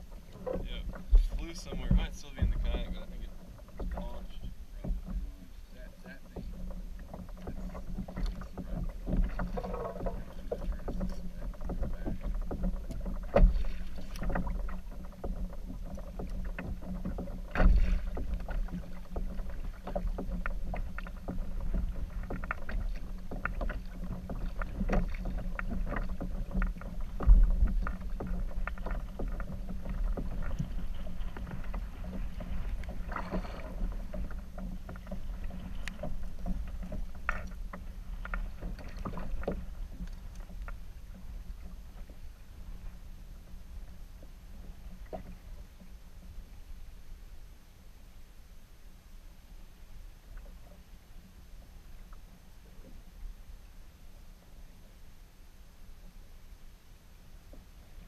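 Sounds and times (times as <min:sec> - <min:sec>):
low thumps: 0:00.0 - 0:05.3
water lapping against kayak hull: 0:00.0 - 0:58.0.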